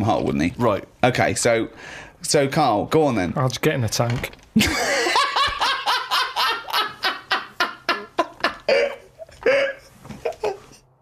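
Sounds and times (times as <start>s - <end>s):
man laughing hard: 4.6s - 10.8s.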